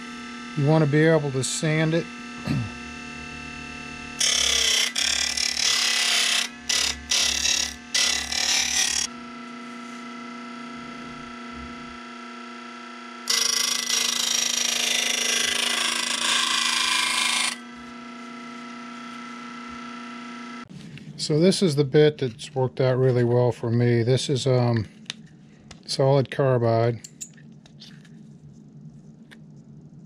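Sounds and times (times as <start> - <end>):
belt sander motor hum: 0.0 - 20.7.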